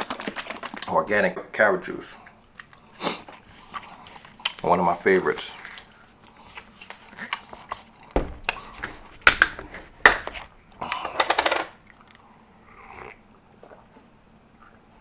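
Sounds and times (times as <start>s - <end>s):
plastic bottle crackling: 8.2s - 10.6s.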